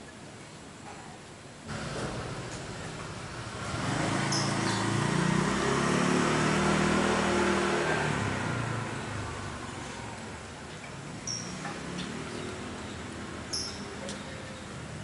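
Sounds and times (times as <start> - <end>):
vehicle engine passing by: 1.7 - 13.6.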